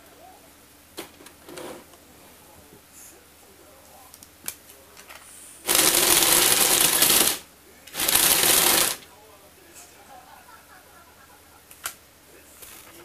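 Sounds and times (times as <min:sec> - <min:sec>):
toy crawler motors rattling: 0:05.7 - 0:09.0.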